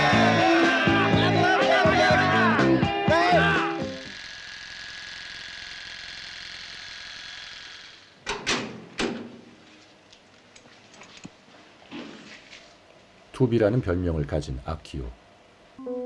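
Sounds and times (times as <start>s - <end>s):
guitar music: 0.0s - 4.1s
electric hair clippers buzzing: 0.0s - 8.2s.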